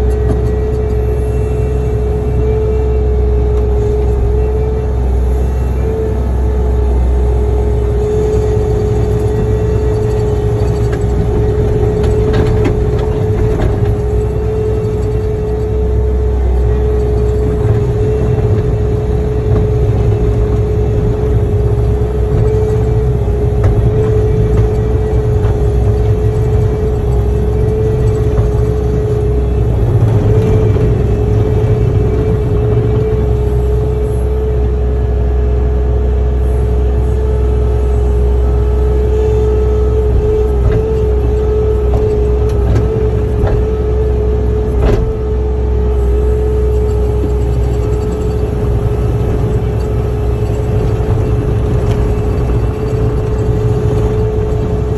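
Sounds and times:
heavy machine engine rumbling: 0.0s - 54.9s
high engine whine: 0.0s - 54.9s.

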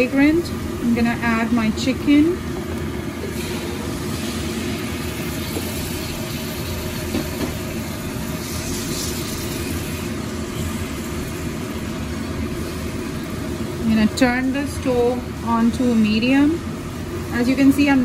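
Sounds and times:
steady low hum: 0.0s - 18.0s
chicken sizzling in hot oil: 2.2s - 15.4s.

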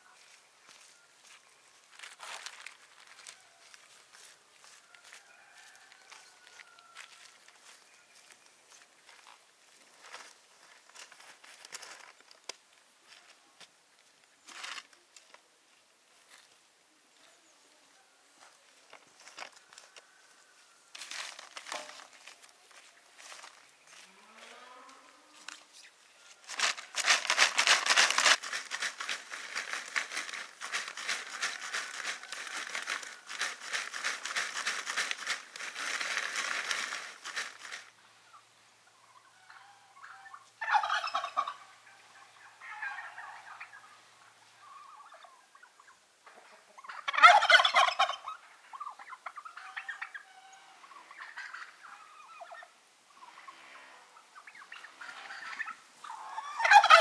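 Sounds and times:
chestnuts rattling in plastic crate: 26.5s - 37.9s
turkey gobbling: 26.6s - 53.5s, 54.4s - 57.0s.

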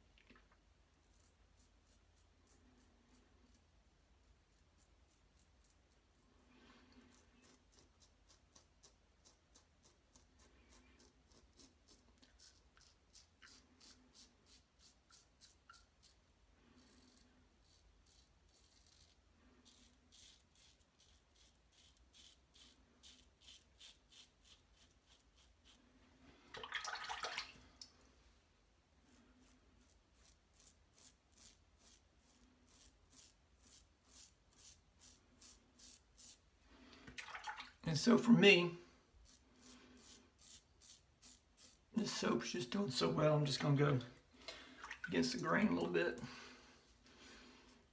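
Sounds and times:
razor scraping through stubble: 1.0s - 6.2s, 7.1s - 25.8s, 29.0s - 36.5s, 39.2s - 43.6s.

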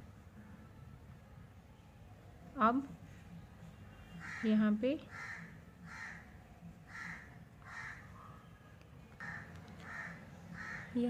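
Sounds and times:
crow cawing: 4.2s - 8.2s, 9.2s - 11.0s.

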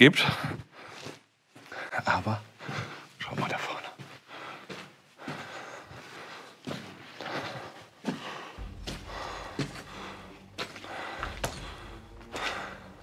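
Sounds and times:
scuffing footsteps: 4.0s - 13.0s
person breathing: 4.2s - 13.0s
steady low hum: 8.6s - 13.0s.

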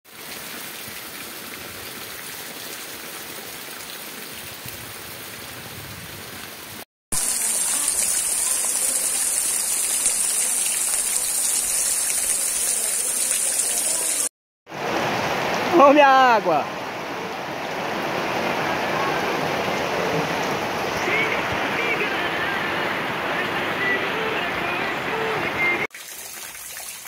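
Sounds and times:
rain falling on trees: 7.2s - 22.6s.

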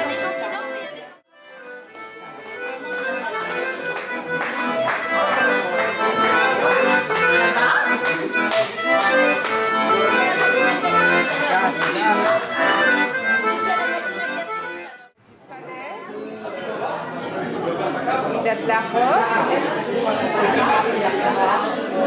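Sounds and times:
button accordion playing a tune: 0.0s - 15.2s.

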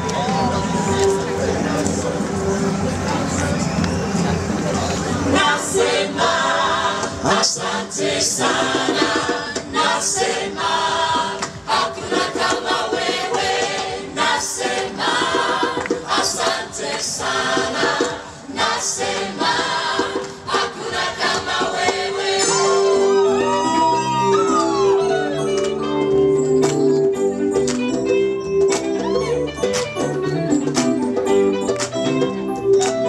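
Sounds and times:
gospel choir singing: 5.3s - 23.6s
steady beat: 5.3s - 24.0s.

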